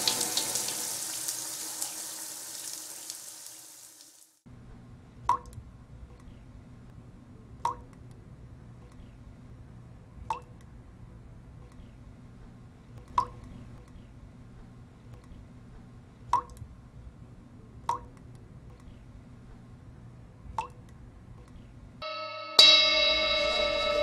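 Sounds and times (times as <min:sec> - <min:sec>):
drip-like clicks: 0:05.3 - 0:05.6, 0:10.3 - 0:10.7, 0:16.3 - 0:16.6, 0:20.5 - 0:21.0
music chord with high note: 0:22.0 - 0:24.0.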